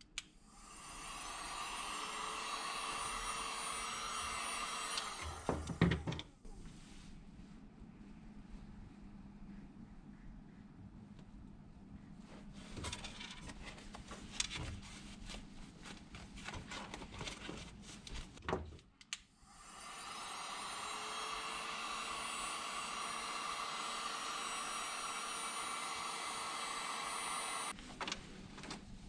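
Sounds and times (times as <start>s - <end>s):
heat gun blowing hiss: 0.4s - 5.8s, 19.4s - 27.8s.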